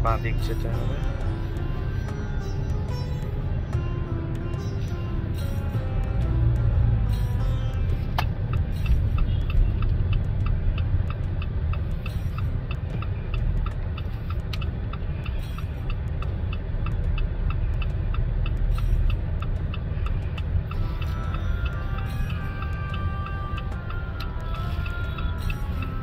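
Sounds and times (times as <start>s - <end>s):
engine and road noise rumble: 0.0s - 26.0s
turn signal ticking: 0.0s - 26.0s.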